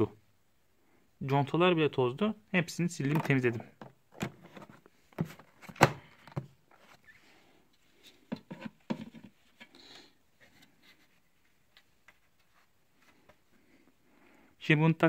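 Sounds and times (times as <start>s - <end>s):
plastic clicks and knocks: 3.1s - 6.6s.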